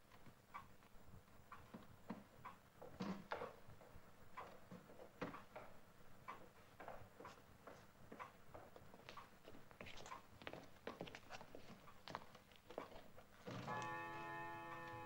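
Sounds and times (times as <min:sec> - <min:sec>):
clock ticking: 0:00.1 - 0:02.7
shuffling: 0:06.5 - 0:15.0.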